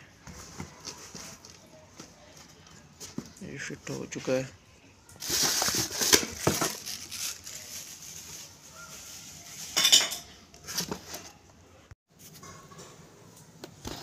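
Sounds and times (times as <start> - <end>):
hands handling cardboard box: 5.2 - 7.6.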